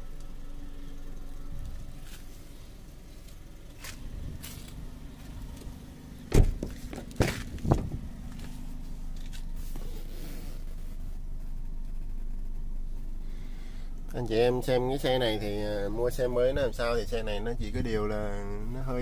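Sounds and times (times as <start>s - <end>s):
car door latch clunks: 3.8s - 8.1s.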